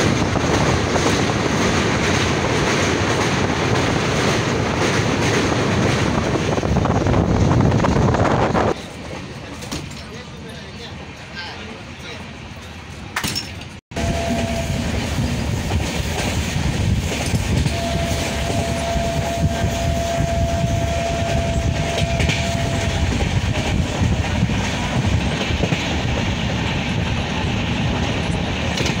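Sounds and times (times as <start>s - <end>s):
train wheels clickety-clack: 0.0s - 10.3s, 14.3s - 29.0s
long high note: 13.9s - 15.0s, 17.7s - 23.8s.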